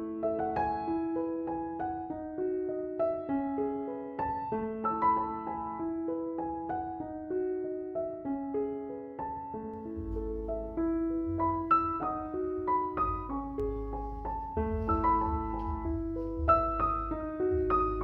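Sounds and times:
melody of short stepping notes: 0:09.8 - 0:18.0
pulsing bass line: 0:09.9 - 0:18.0.

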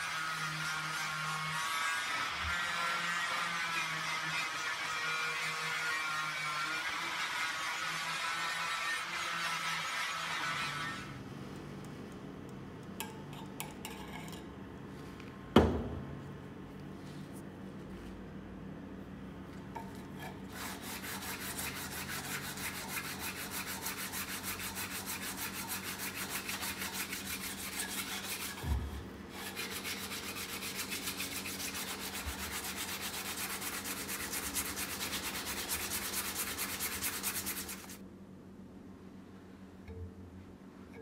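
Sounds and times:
brush scrubbing metal blade: 0:19.8 - 0:28.7, 0:29.3 - 0:38.0.

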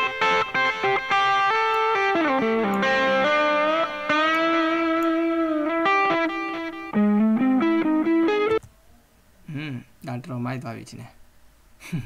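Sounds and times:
electric guitar solo: 0:00.0 - 0:08.6.

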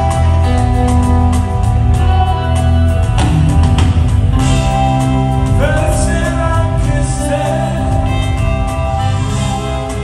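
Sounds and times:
live band playing: 0:00.0 - 0:10.0
person singing: 0:05.4 - 0:10.0.

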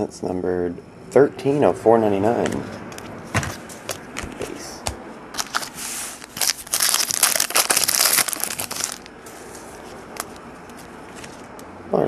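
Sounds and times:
wrapper crinkling and tearing: 0:05.4 - 0:09.1
quiet handling of cards: 0:08.9 - 0:11.8.

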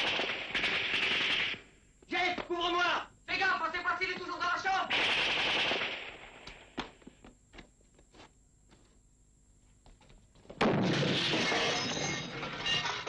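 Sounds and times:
loud explosion: 0:10.6 - 0:12.2.

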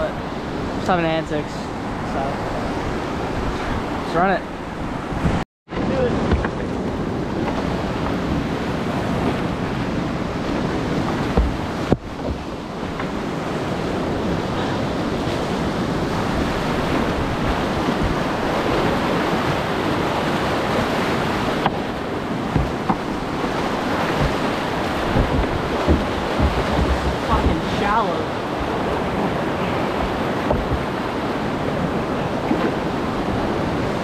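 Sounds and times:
water splashing on kayak: 0:04.6 - 0:34.0
whitewater rapids rushing: 0:08.5 - 0:34.0.

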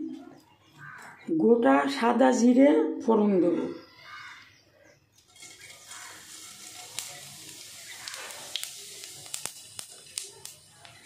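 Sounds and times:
seeds sizzling in hot oil: 0:05.2 - 0:11.0
small pops and crackles: 0:05.2 - 0:11.0.

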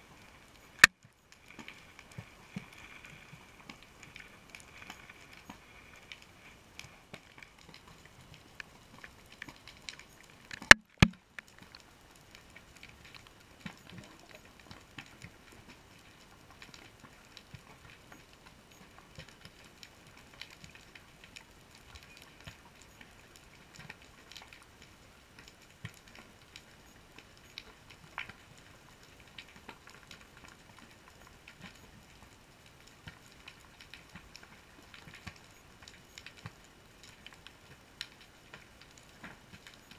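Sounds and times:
underwater reef crackling: 0:00.0 - 0:39.9.

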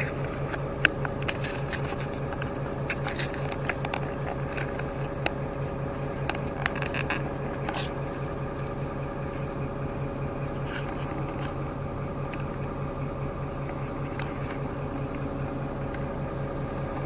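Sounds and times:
cabin clicks and rattles: 0:00.0 - 0:09.6
bus engine humming: 0:00.0 - 0:17.0.

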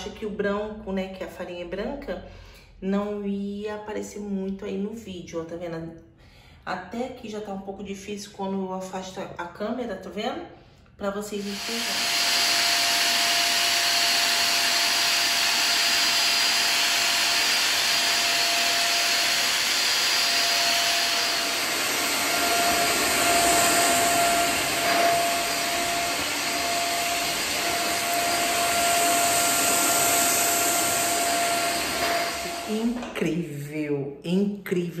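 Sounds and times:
vacuum cleaner whining: 0:11.3 - 0:33.4.

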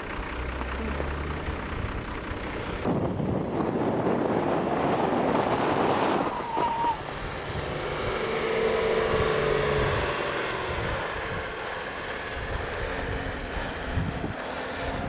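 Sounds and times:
off-road vehicle engine running: 0:00.0 - 0:15.0
wind on the microphone: 0:02.8 - 0:11.5, 0:12.4 - 0:15.0.

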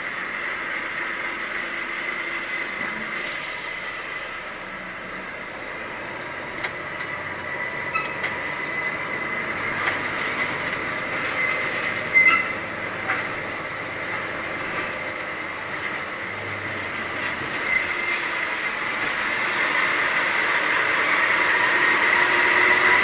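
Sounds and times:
lorry engine running: 0:00.0 - 0:23.0
sharp loud squeal: 0:02.4 - 0:02.8, 0:11.2 - 0:12.6.

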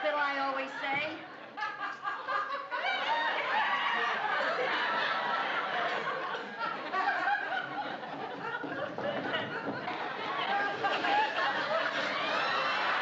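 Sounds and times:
studio audience laughing: 0:00.5 - 0:13.0.

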